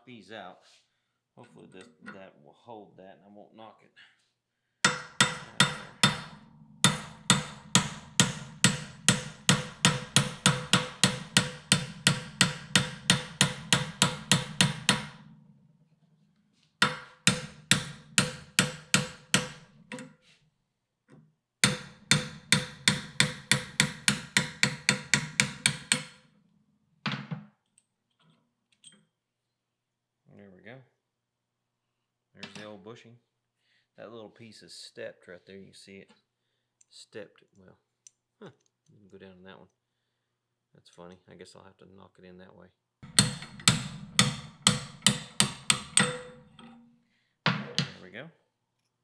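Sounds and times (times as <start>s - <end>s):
hammer striking metal driver: 4.9s - 15.3s, 16.8s - 20.1s, 21.6s - 26.2s, 43.0s - 46.9s, 47.5s - 48.0s.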